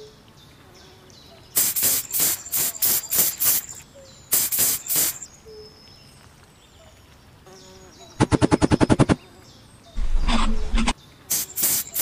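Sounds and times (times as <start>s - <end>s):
hissing spray bursts: 1.6s - 5.3s, 10.1s - 12.0s.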